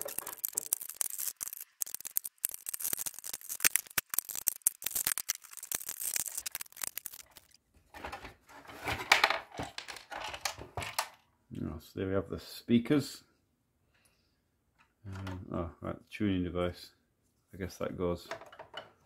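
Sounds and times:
screwdriver clicking and scraping: 0:00.0 - 0:07.5.

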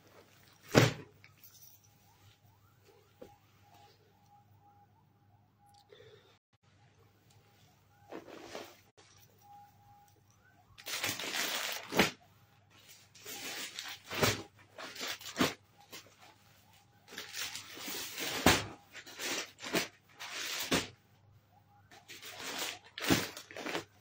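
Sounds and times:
plastic packaging rustling: 0:10.8 - 0:12.2, 0:12.8 - 0:16.2, 0:17.1 - 0:20.9, 0:22.0 - 0:24.0.

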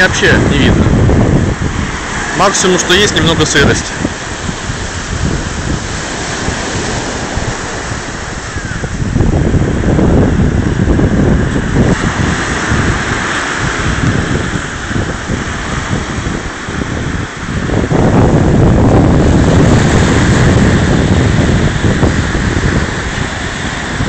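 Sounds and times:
surf breaking on beach: 0:00.0 - 0:24.0
wind buffeting microphone: 0:00.0 - 0:24.0.

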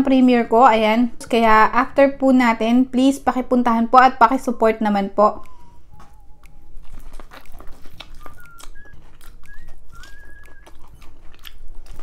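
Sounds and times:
faint wavering whistle-like tone: 0:05.3 - 0:07.2, 0:08.0 - 0:11.0
chewing with wet mouth clicks: 0:05.3 - 0:12.0.

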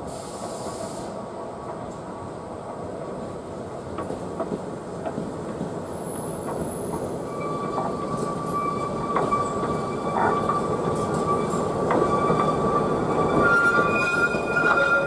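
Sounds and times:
high wheel squeal: 0:07.2 - 0:15.0.

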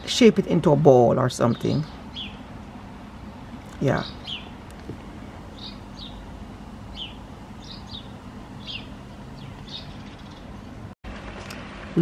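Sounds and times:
small bird chirping: 0:01.4 - 0:02.5, 0:03.7 - 0:04.8, 0:05.5 - 0:06.3, 0:06.9 - 0:10.8.

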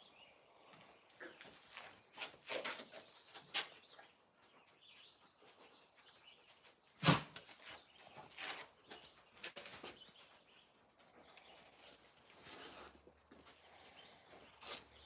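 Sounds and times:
puppies scuffing on concrete: 0:01.1 - 0:15.0.

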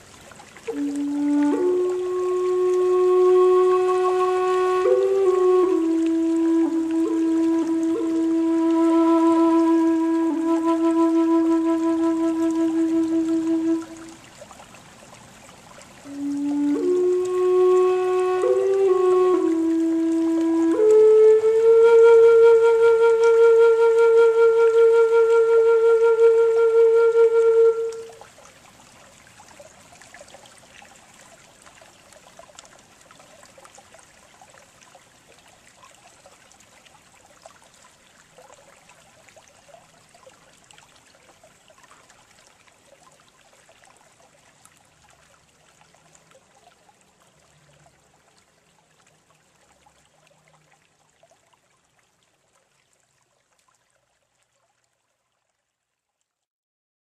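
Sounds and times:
faint hiss with trickle: 0:00.0 - 0:56.4
whistle note: 0:00.7 - 0:14.1, 0:16.1 - 0:28.1.

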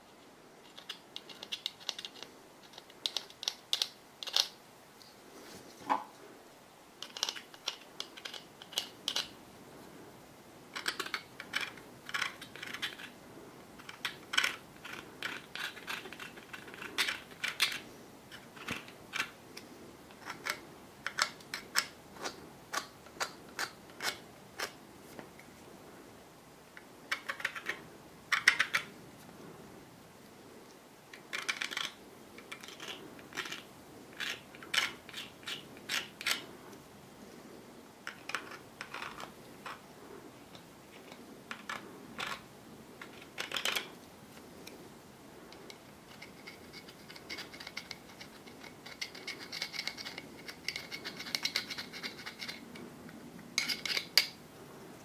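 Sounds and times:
metal pick scraping and clicking: 0:45.5 - 0:52.8, 0:53.6 - 0:54.4.

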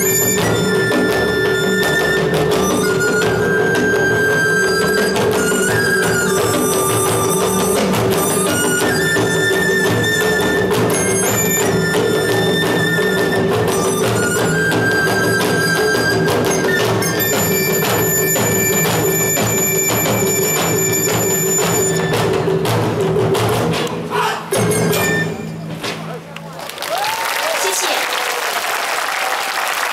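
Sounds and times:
flute melody: 0:00.0 - 0:22.7, 0:24.1 - 0:26.2
steady drumming: 0:00.0 - 0:27.2.

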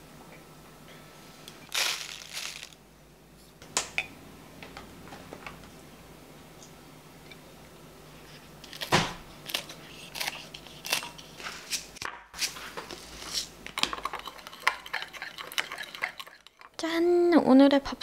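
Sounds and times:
metal spoon clinking glass bowl: 0:14.0 - 0:16.7.

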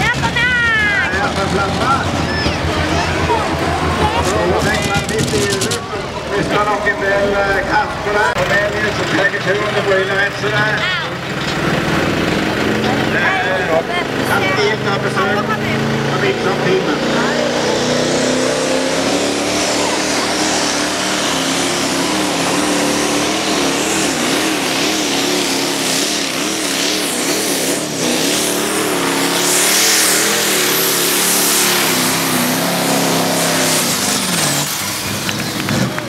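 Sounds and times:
tractor diesel engine at full throttle: 0:00.0 - 0:36.0.

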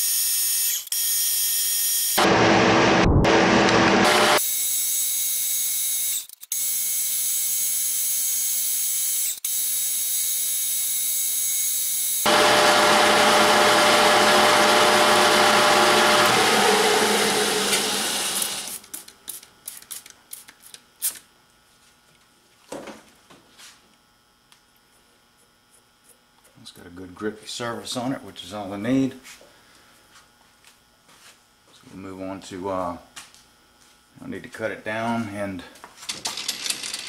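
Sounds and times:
metal lathe high whine: 0:12.2 - 0:18.8.

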